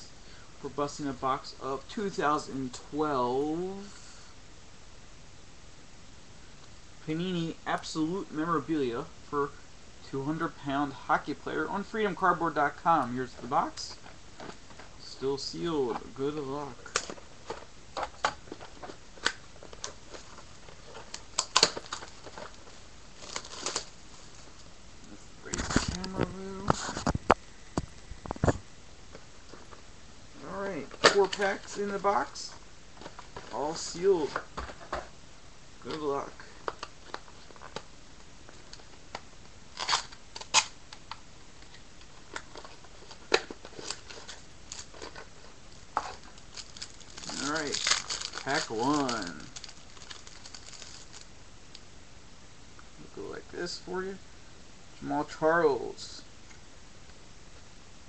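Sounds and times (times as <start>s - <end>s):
card packs clicking: 16.0s - 23.9s, 30.9s - 34.4s, 46.0s - 51.2s
plastic shrink-wrap tearing: 19.2s - 22.6s, 23.2s - 23.9s, 39.7s - 40.8s, 42.3s - 45.2s, 46.0s - 51.3s.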